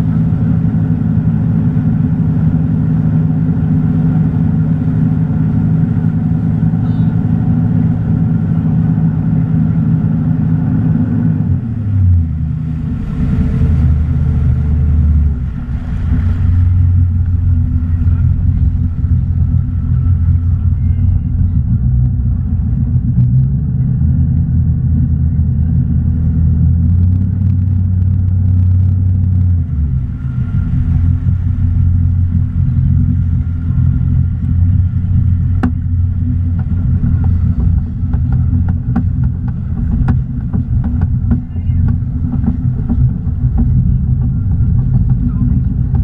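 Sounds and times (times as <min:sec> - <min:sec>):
boat engine drone: 0:00.0 - 0:46.0
rush of boat wake: 0:00.0 - 0:46.0
wind on microphone: 0:10.0 - 0:46.0.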